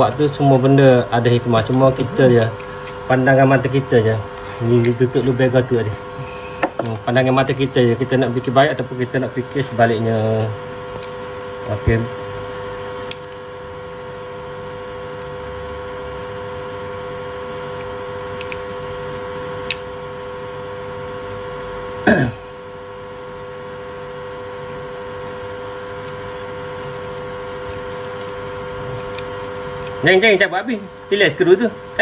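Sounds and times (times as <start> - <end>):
steady tonal hum: 0.0 - 32.0.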